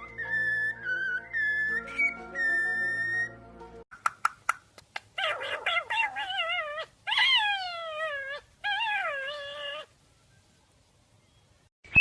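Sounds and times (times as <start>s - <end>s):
cockatiel whistle: 0.0s - 3.4s
parakeet high wavering calls: 0.0s - 3.4s.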